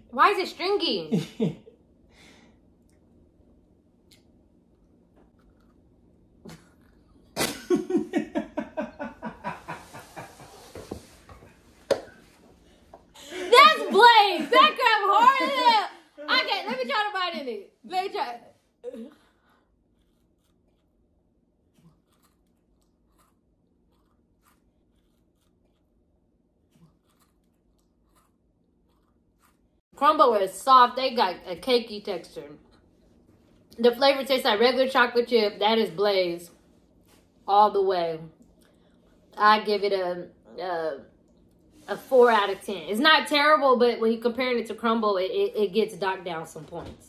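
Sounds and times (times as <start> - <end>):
chewing with soft crunches: 4.0 - 7.4, 19.2 - 29.8.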